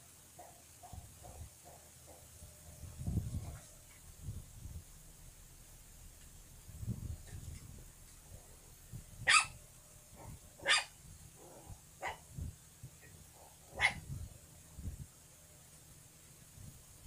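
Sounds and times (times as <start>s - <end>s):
puppy yapping: 9.2s - 9.6s, 10.2s - 12.2s, 13.7s - 14.1s.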